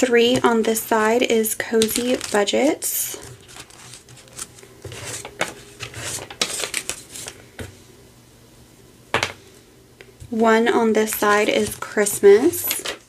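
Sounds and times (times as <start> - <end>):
paper money and plastic rustling: 0.0 - 7.4, 10.9 - 13.0.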